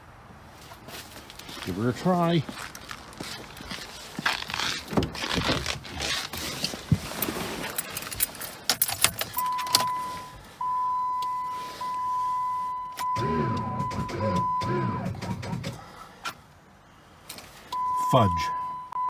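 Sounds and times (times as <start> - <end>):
rustling: 0.5 - 1.8, 2.4 - 9.4
keys jangling: 7.7 - 9.9
electronic warning chime: 9.4 - 15.0, 17.8 - 19.0.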